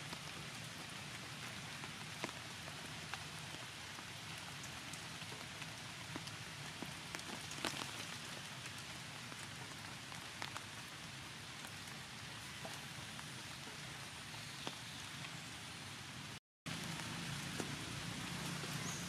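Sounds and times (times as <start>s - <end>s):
steady rain falling: 0.0s - 19.0s
close raindrop taps: 4.6s - 10.8s.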